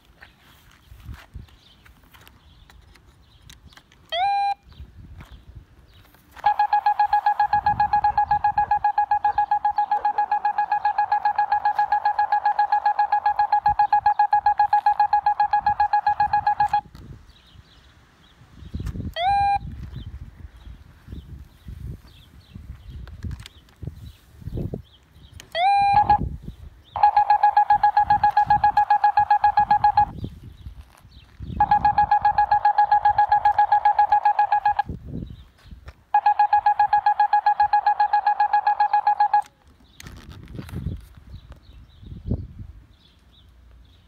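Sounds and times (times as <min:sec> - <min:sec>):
cable locator pulsing beeps: 0:04.2 - 0:04.6, 0:06.4 - 0:16.8, 0:19.2 - 0:19.6, 0:25.6 - 0:26.3, 0:27.0 - 0:30.2, 0:31.6 - 0:34.9, 0:36.1 - 0:39.5
rising electronic chirp: 0:06.4 - 0:16.8, 0:25.6 - 0:26.3, 0:27.0 - 0:30.2, 0:31.6 - 0:34.9, 0:36.2 - 0:39.5.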